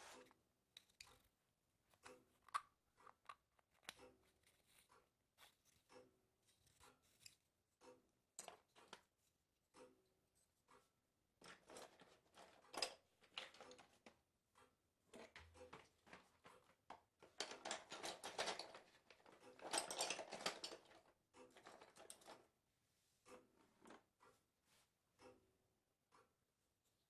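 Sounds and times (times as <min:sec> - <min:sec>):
dry crackling clicks and rustles: 0:15.1 - 0:22.5.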